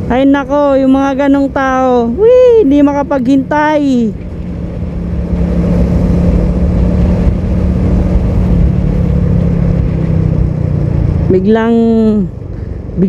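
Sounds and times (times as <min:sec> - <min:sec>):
motorcycle engine cruising: 0:00.0 - 0:13.0
road and wind noise: 0:00.0 - 0:13.0.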